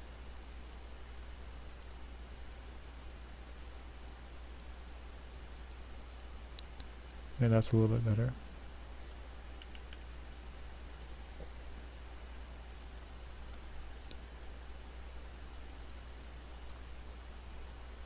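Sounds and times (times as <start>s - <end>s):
low electrical hum: 0.0s - 18.0s
computer mouse clicks: 0.6s - 0.9s, 1.6s - 2.0s, 3.5s - 3.8s, 4.4s - 4.7s, 5.5s - 7.2s, 8.6s - 10.4s, 12.6s - 14.2s, 15.4s - 17.5s.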